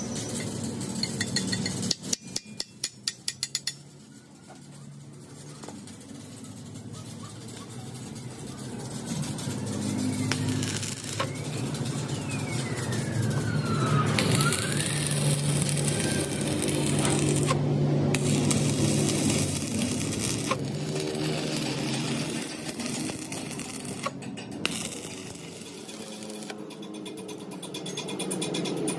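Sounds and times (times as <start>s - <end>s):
welding arc crackling: 4.9s - 27.4s.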